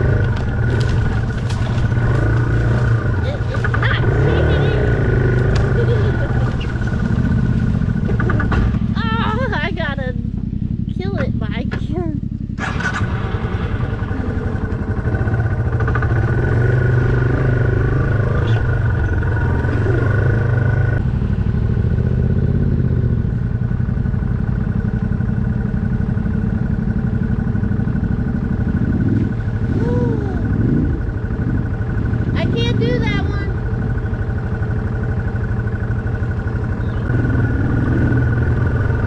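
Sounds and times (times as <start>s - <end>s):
motorcycle revving past: 0.0s - 9.9s, 12.5s - 23.4s, 27.7s - 39.0s
motorcycle engines running: 0.0s - 39.0s.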